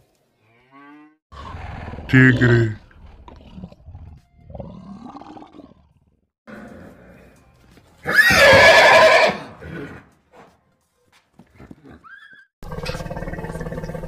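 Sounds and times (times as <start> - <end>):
horse neighing: 8.0 - 10.1, 11.6 - 13.3.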